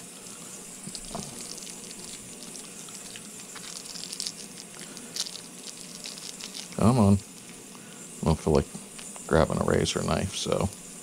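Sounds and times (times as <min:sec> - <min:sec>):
ultrasonic cleaner hissing: 0:00.0 - 0:11.0
plastic bag crinkling and clicking: 0:00.8 - 0:07.6.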